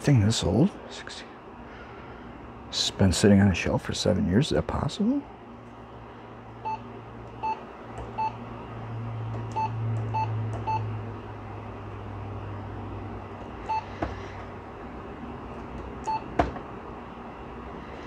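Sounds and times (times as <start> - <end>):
steady low hum: 0.0 - 18.0
printer control panel beeps: 7.4 - 8.4, 9.5 - 10.9, 13.6 - 13.9, 16.0 - 16.3.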